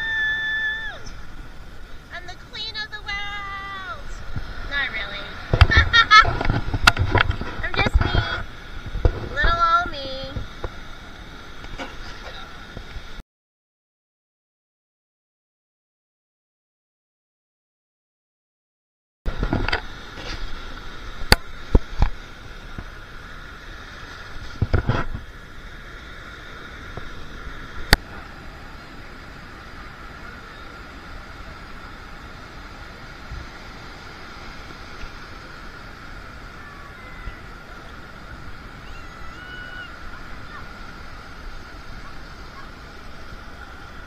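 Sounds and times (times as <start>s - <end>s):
surf: 0.0s - 13.2s, 19.3s - 44.0s
wind: 0.0s - 13.2s, 19.3s - 44.0s
wind buffeting microphone: 1.1s - 11.2s.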